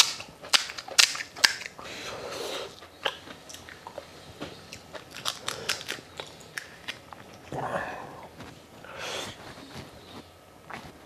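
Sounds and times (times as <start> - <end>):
crisp shells cracking: 0.0 - 1.8, 4.8 - 7.4
chewing: 0.1 - 7.6.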